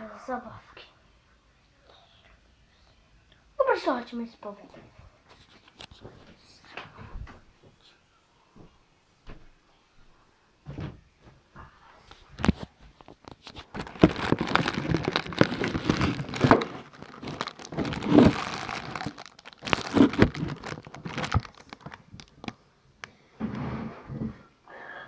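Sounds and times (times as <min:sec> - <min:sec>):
rustling and crinkling: 0:04.7 - 0:07.4, 0:10.8 - 0:22.6.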